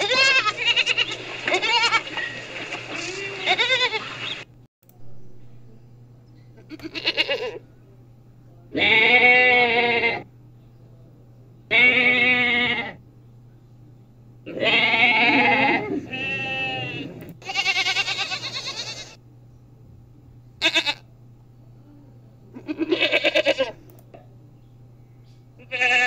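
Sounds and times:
goats bleating: 0.0 - 4.4, 6.6 - 7.6, 8.7 - 10.3, 11.7 - 13.0, 14.5 - 19.2, 20.6 - 21.1, 22.6 - 23.8, 25.6 - 26.0.

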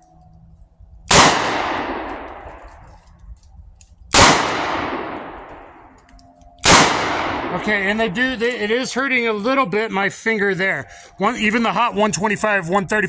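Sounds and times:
revolver shots with echo: 1.1 - 2.6, 4.1 - 5.7, 6.6 - 7.7.

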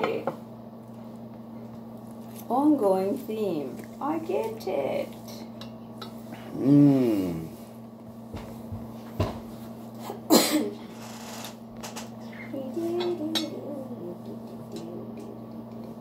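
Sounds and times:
person humming: 6.4 - 7.6, 12.3 - 15.6.

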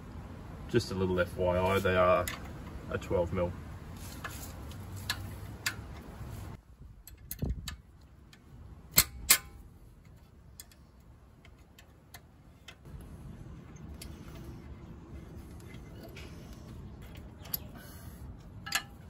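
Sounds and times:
spanner clicking on metal bolt: 7.0 - 9.6, 18.6 - 19.0.

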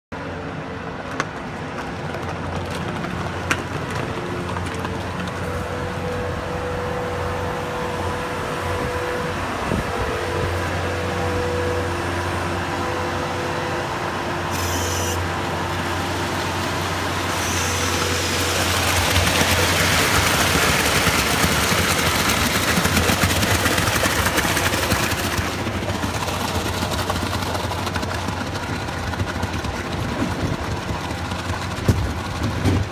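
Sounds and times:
skid steer engine humming: 0.1 - 32.9
concrete rushing down a chute: 15.8 - 32.9.

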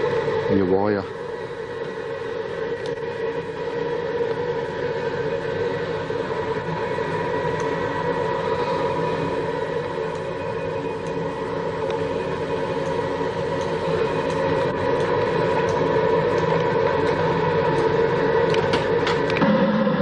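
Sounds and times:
steady mechanical drone: 0.0 - 20.0.

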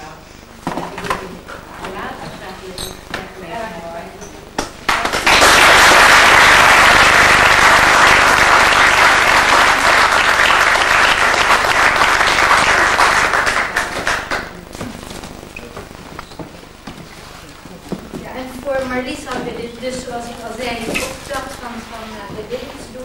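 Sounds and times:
audience applauding: 4.6 - 15.4.

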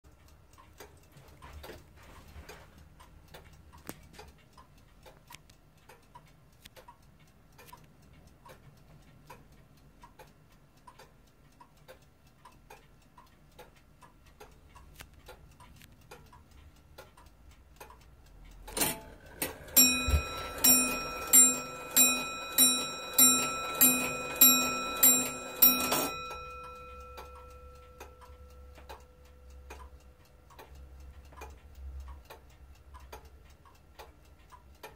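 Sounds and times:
clock ticking: 0.0 - 34.9
clock mechanism click: 0.1 - 34.9
clock gear train whirring: 18.6 - 30.0
hammer striking clock bell: 18.8 - 29.5.

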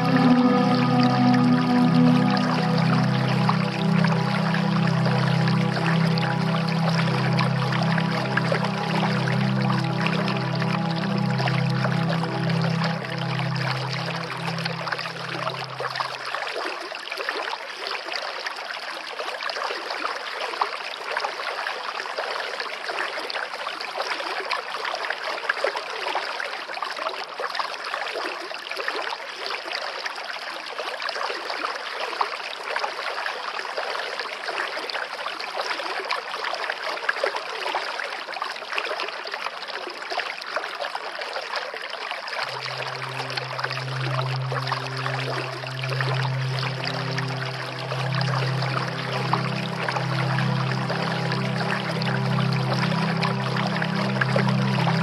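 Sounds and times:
low held musical tone: 0.0 - 16.5, 42.4 - 55.0
stream splashing over rocks: 0.0 - 55.0.

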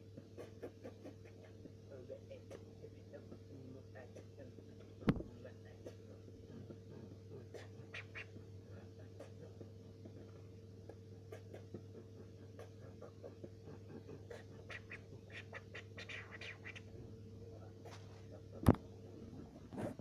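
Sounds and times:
steady electrical hum: 0.0 - 20.0.

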